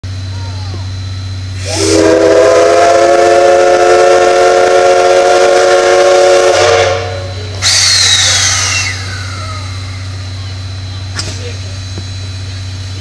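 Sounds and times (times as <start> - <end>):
hissing steam with falling whine: 1.5 - 13.0
steam locomotive whistle blast: 1.6 - 9.4.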